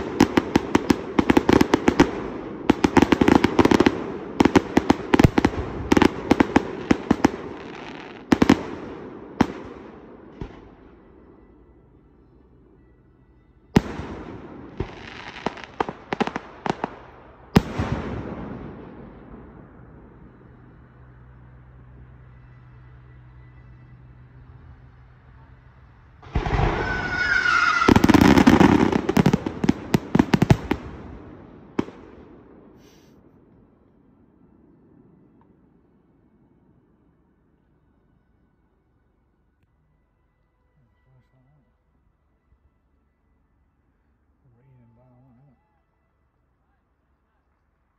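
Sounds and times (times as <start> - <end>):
firework bangs: 0.0 - 11.3, 13.8 - 20.3, 26.2 - 33.8.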